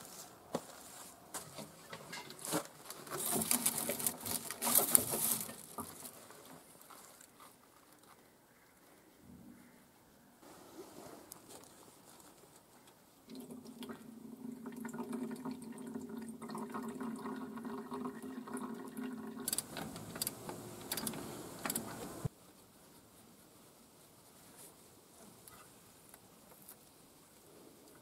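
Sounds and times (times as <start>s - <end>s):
liquid stream filling a can: 13.3s - 19.8s
sharp clicks and knocks: 19.5s - 22.3s.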